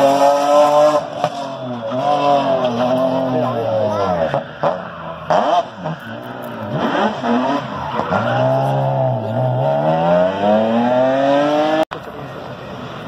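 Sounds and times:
rally car engine revving: 0.0s - 11.9s.

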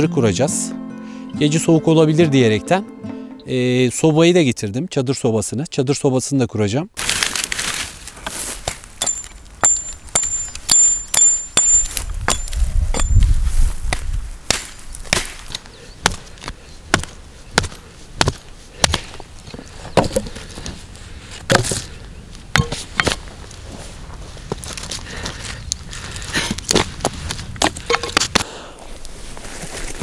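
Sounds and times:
hatchet chopping branches: 7.0s - 19.2s, 21.5s - 21.8s, 22.5s - 23.2s.

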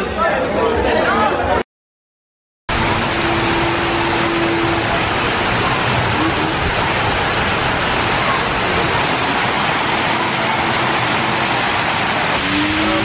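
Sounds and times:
water splashing into fountain pool: 2.7s - 13.0s.

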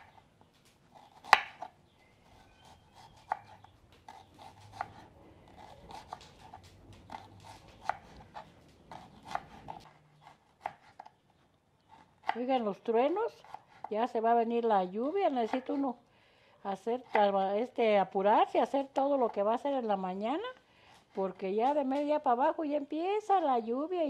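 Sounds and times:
knife slicing onion: 0.9s - 11.2s, 11.8s - 14.0s.

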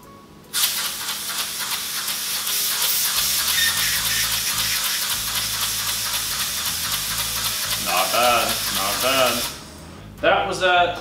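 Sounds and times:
compressed-air engine hissing: 0.6s - 9.8s
fluttering exhaust pulses: 3.0s - 9.6s.

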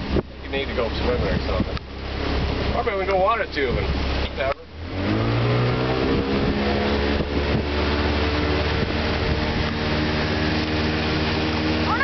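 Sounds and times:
boat motor speeding up: 0.0s - 12.0s
water rushing: 0.0s - 12.0s
wind rushing: 4.9s - 11.9s.

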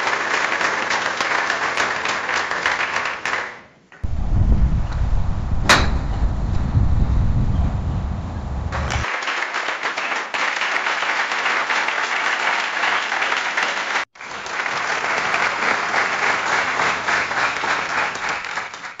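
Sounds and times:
audience applause: 0.0s - 3.8s, 8.8s - 19.0s.

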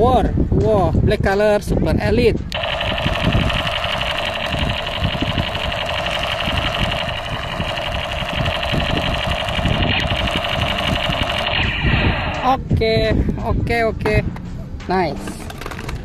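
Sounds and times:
toy gun pulsing buzz: 2.5s - 12.5s.

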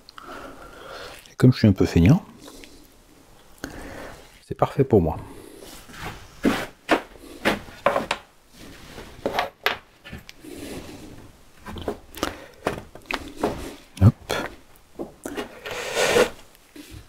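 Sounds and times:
wood scraping on wood: 15.3s - 17.0s.

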